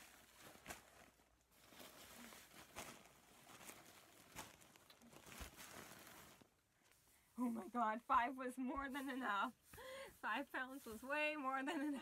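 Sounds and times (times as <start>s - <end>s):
stuffing being handled: 0.0s - 6.6s
plastic bag rustling: 0.0s - 7.9s.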